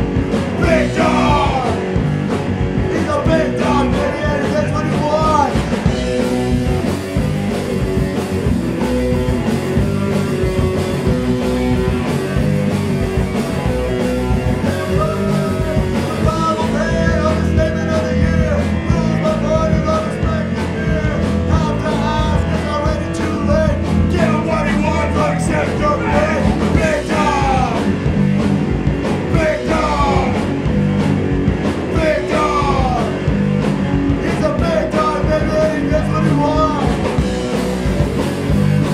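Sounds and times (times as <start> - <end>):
bass guitar: 0.0 - 38.9
distorted electric guitar: 0.0 - 38.9
drums: 0.0 - 38.9
person singing: 0.6 - 1.8, 2.9 - 5.6, 14.6 - 27.9, 29.3 - 30.5, 31.9 - 33.2, 34.2 - 37.2.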